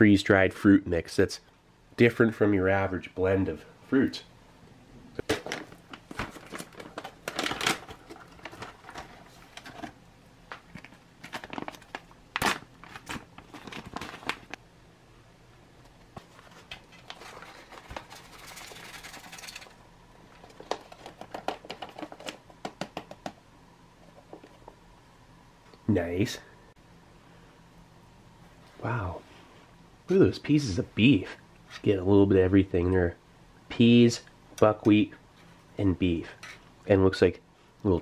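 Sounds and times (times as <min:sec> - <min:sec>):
foil pouch crinkling: 0:05.4 - 0:09.9, 0:10.6 - 0:14.6, 0:16.6 - 0:19.8.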